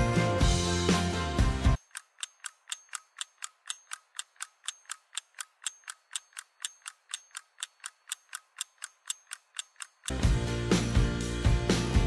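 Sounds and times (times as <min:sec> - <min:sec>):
rapid mechanical ticking: 0:01.8 - 0:10.2.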